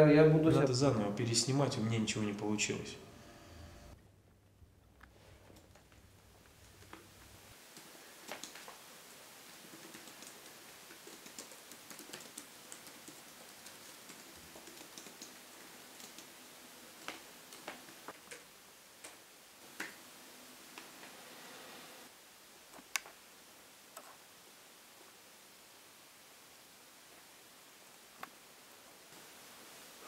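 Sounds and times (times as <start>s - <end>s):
laptop keyboard typing: 7.7s - 8.8s, 9.6s - 16.4s.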